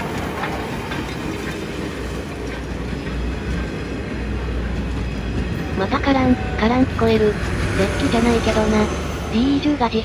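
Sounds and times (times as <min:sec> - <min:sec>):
wheels clicking over rail joints: 0:00.0 - 0:05.8
train rumble: 0:00.0 - 0:10.0.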